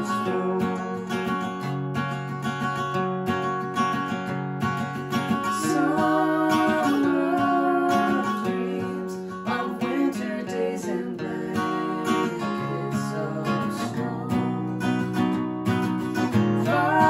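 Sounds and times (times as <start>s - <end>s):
man and woman singing: 0.0s - 1.2s, 5.4s - 15.1s, 16.3s - 17.0s
acoustic guitar strumming: 0.0s - 17.0s.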